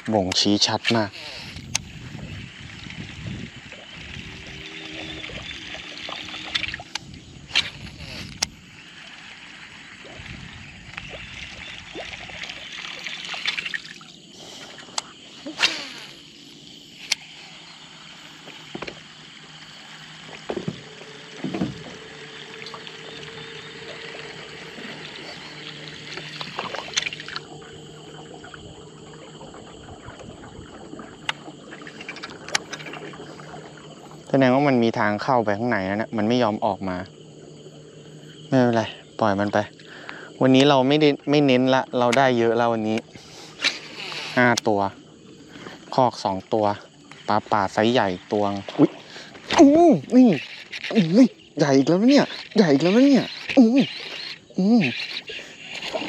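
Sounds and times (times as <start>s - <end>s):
faint steady hum: 0.0s - 56.0s
water sloshing around boat: 0.0s - 56.0s
sharp knocks and clicks: 18.7s - 19.0s, 20.3s - 22.0s.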